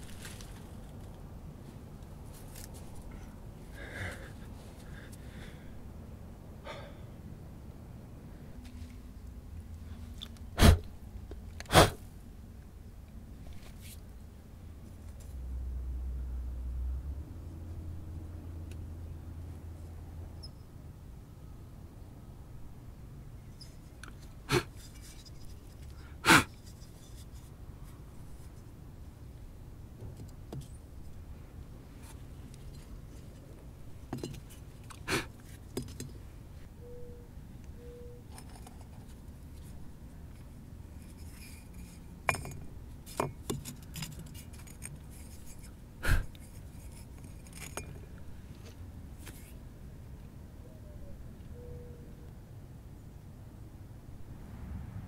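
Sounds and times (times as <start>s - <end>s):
clay pieces clinking and knocking: 42.2s - 45.6s.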